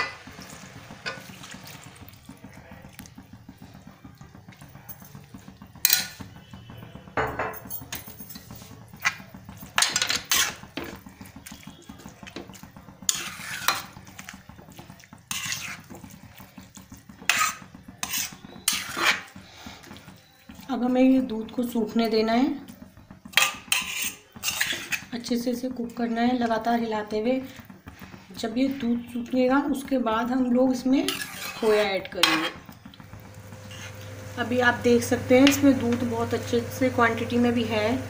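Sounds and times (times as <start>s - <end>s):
metal spatula scraping pan: 5.8s - 7.2s, 7.8s - 32.9s, 33.6s - 34.0s.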